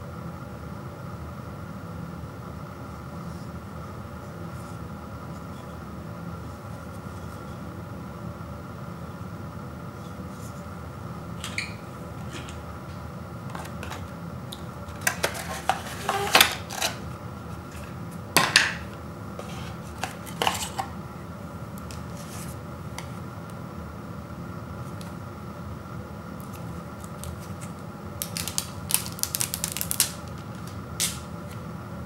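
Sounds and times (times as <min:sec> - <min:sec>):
steady low hum: 0:00.0 - 0:32.0
cardboard and plastic rustling: 0:13.5 - 0:14.1, 0:14.8 - 0:17.0, 0:19.4 - 0:20.9, 0:26.6 - 0:31.6.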